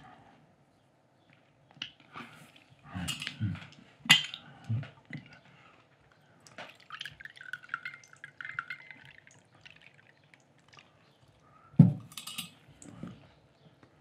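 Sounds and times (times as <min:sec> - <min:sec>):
tea pouring into cup: 0:06.5 - 0:11.4.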